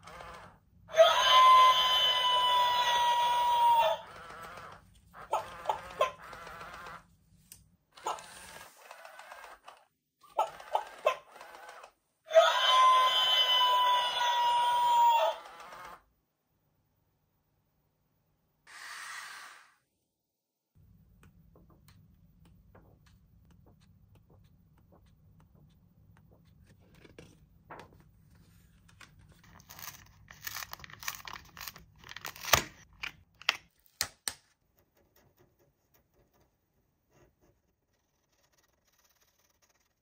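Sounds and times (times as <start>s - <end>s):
paper pages rustling: 26.2s - 32.9s
crisp page turns: 26.7s - 32.8s.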